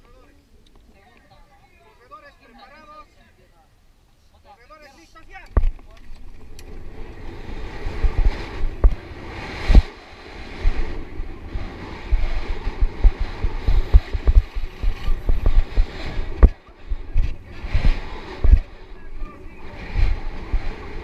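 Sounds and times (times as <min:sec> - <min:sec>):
wind rushing over microphone: 0:05.5 - 0:21.0
bike thumping over bumps: 0:05.6 - 0:09.9, 0:12.0 - 0:18.7.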